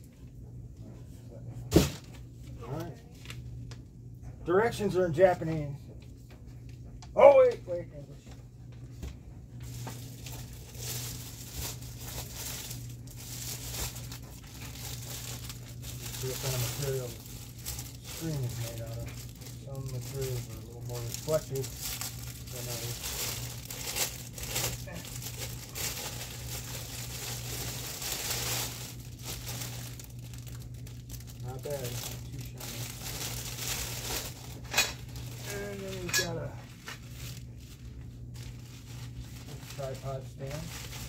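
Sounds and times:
steady low hum: 0.0 - 41.0
packaging rustling and crinkling: 9.5 - 41.0.

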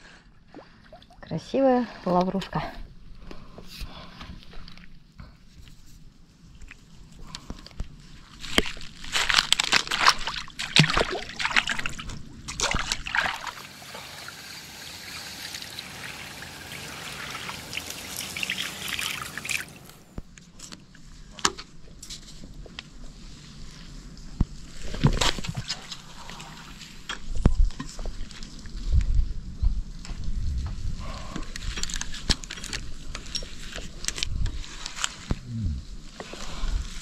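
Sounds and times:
water splashing and sloshing: 0.4 - 2.9, 8.0 - 20.2, 24.6 - 28.7
water trickling: 10.6 - 20.1.

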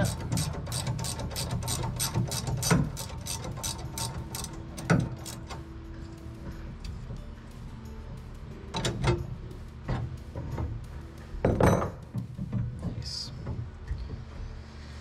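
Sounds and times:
ratcheting wrench clicking: 0.0 - 5.6
metal knocks: 11.4 - 14.2.

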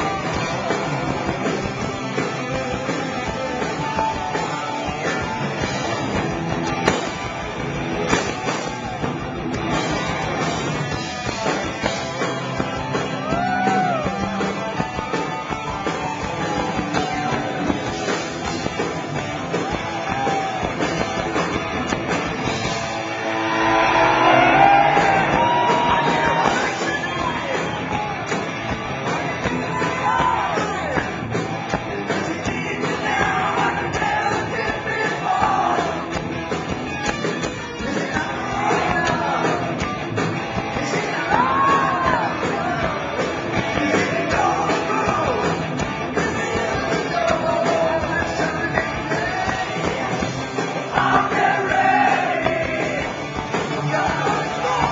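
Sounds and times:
electric guitar lead: 0.0 - 35.2, 35.9 - 51.0
drums and bass: 0.0 - 54.9
person singing: 40.7 - 50.2, 50.9 - 54.9.

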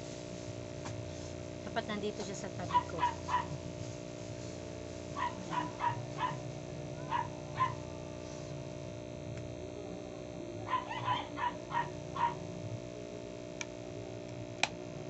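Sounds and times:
electrical hum: 0.0 - 15.0
small dog yipping: 2.7 - 3.6, 5.2 - 6.4, 7.0 - 7.8, 10.7 - 12.4.

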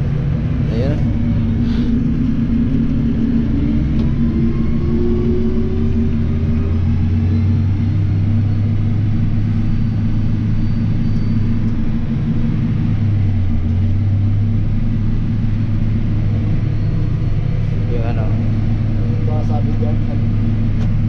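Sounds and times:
tractor diesel engine hum: 0.0 - 21.0.

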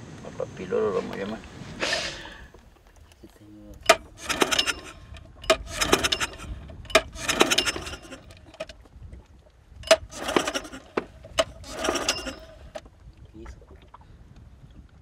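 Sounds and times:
outboard motor recoil cord pulls: 1.0 - 13.0
engine cranking whirr: 3.8 - 8.8, 9.8 - 12.8.

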